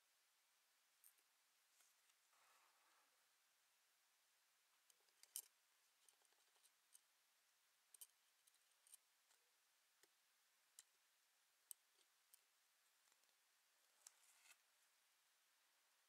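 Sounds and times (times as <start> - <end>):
faint metallic clicks of watch tools: 4.8 - 7.1, 7.9 - 9.4.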